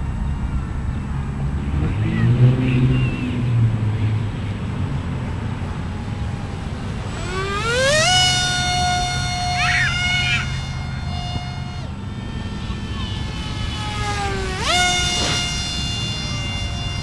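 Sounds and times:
low rumble: 0.0s - 7.2s
electric motor and propeller whining: 0.0s - 17.0s.

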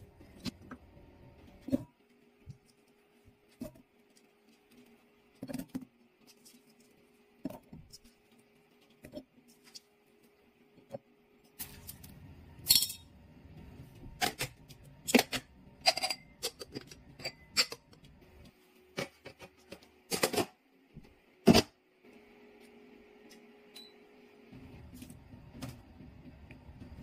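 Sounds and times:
glass jars clinking: 12.7s - 13.0s, 15.8s - 17.8s.

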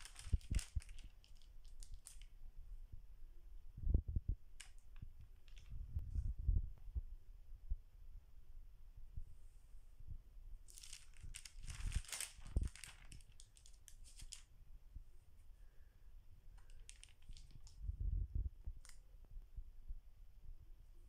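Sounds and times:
pages turning and rustling: 0.0s - 2.3s, 10.7s - 14.5s, 16.6s - 17.8s.

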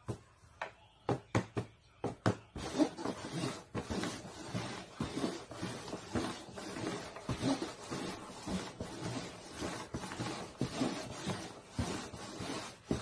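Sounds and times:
paper cups knocking on board: 1.1s - 5.1s
cups scraping and rustling: 2.6s - 13.0s.

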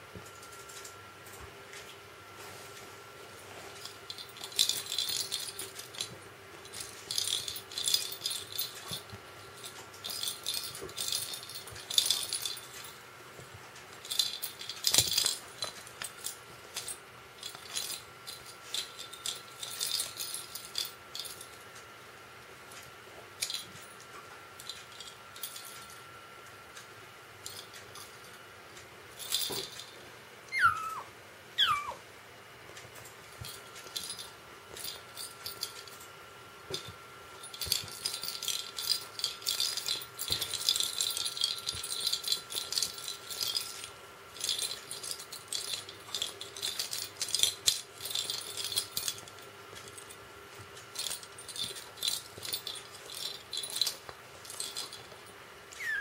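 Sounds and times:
kitten mewing: 30.5s - 32.0s, 55.8s - 56.0s
cat toy ball rattling: 36.7s - 43.8s.

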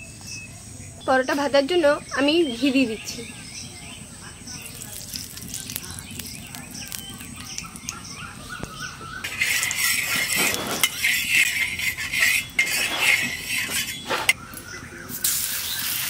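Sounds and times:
metal spatula scraping iron pan: 9.2s - 14.4s.

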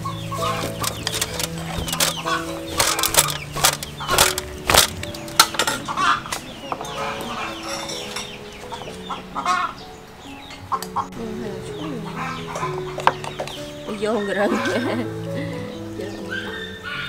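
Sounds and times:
chickens clucking: 0.0s - 17.0s
utensils scraping metal tray: 0.4s - 8.3s.

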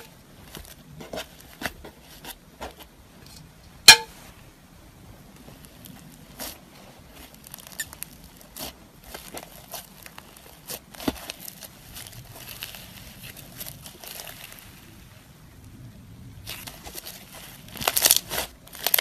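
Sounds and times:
slime kneaded by hand: 5.2s - 19.0s.

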